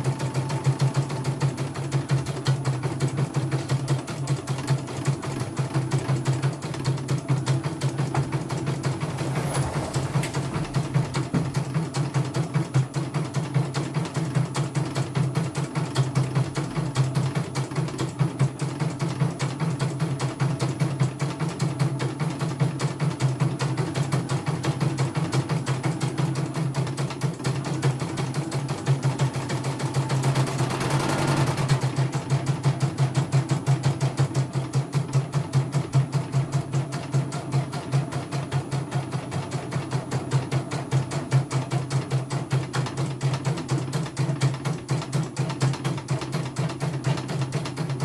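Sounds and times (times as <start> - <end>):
embroidery machine stitching: 0.0 - 48.0
machine whir: 5.0 - 13.5, 27.4 - 33.2.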